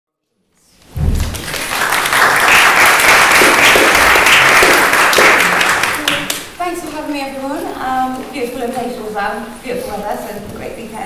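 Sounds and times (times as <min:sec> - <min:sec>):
audience applauding: 0:01.1 - 0:06.6.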